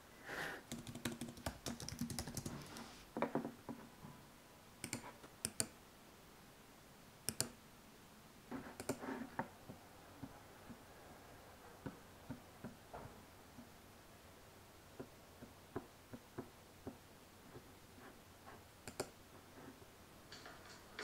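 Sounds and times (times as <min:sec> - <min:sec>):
computer mouse clicks: 0:04.8 - 0:05.8, 0:07.3 - 0:07.6, 0:08.7 - 0:09.0, 0:18.8 - 0:19.2.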